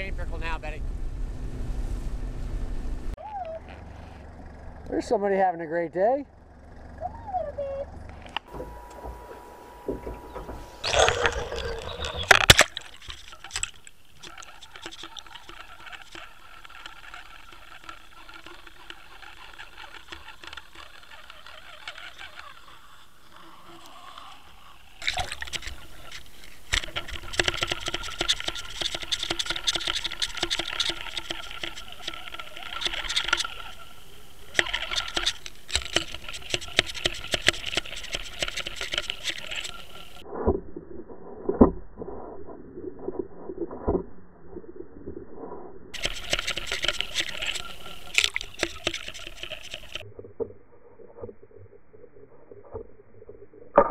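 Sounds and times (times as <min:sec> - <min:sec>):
water gurgling and crackling: 0:07.3 - 0:53.9
bubbles rushing: 0:08.6 - 0:16.8, 0:46.0 - 0:50.0.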